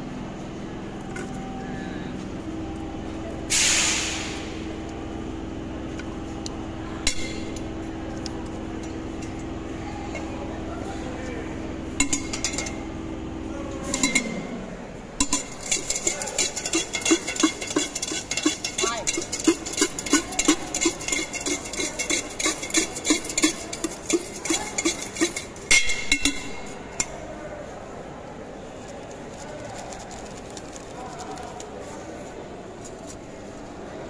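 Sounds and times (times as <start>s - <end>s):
steady low hum: 0.0s - 31.8s
short loud hiss: 3.5s - 4.5s
spoon clanking against steel tin: 12.0s - 12.8s, 13.8s - 14.4s, 15.2s - 27.2s.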